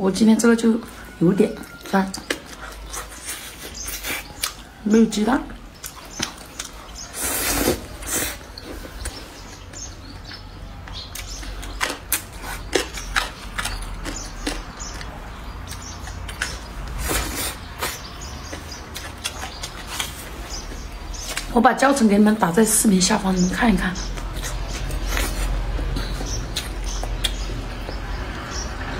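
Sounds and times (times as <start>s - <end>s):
wet chewing and lip smacks: 1.6s - 4.7s, 5.7s - 21.5s, 24.1s - 28.1s
noodle slurps: 7.1s - 8.5s.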